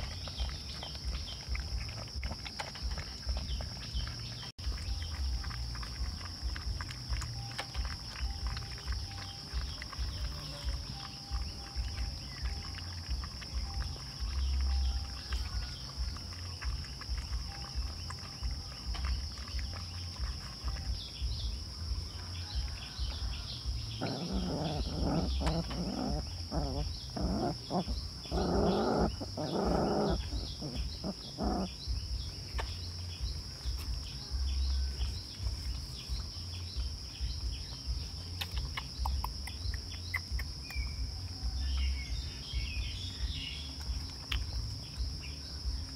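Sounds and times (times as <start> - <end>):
puppies play-growling: 0.0 - 21.3, 22.5 - 34.2.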